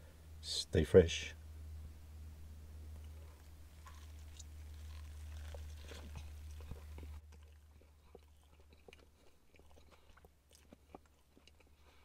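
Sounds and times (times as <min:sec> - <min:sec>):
steady low hum: 0:00.0 - 0:12.0
man chewing crispy food: 0:02.9 - 0:12.0
wet mouth clicks: 0:03.0 - 0:11.7.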